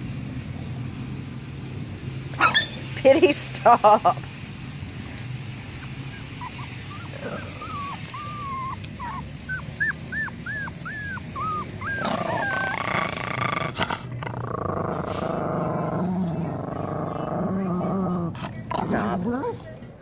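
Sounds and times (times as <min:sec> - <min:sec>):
dog whining: 0:02.4 - 0:02.8, 0:05.6 - 0:13.8
dog growling: 0:05.6 - 0:20.0.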